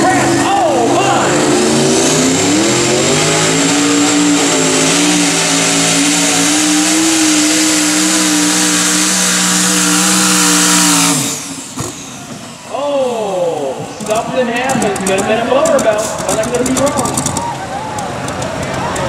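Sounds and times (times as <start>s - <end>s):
high turbo whine: 0.0s - 19.0s
truck engine at full throttle: 0.0s - 19.0s.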